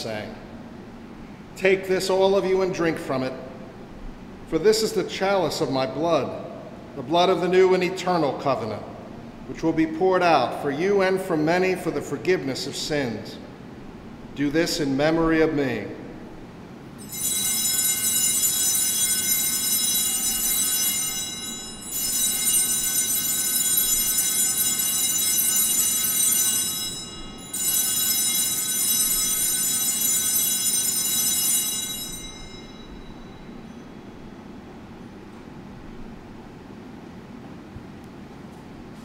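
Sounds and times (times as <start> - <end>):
altar bells ringing: 17.0 - 34.6.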